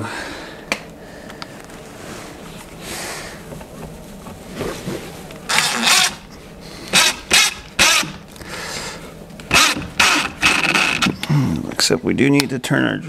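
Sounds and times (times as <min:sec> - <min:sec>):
cordless drill driving screws: 0:05.5 - 0:06.3, 0:06.9 - 0:08.2, 0:09.5 - 0:11.2.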